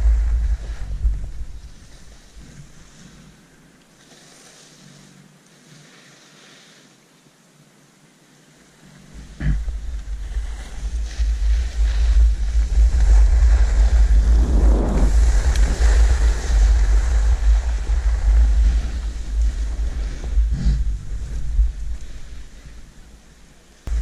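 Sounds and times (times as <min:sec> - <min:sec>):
wind buffeting microphone: 0:00.0 - 0:03.0, 0:09.1 - 0:24.0
skis hissing over snow: 0:00.0 - 0:24.0.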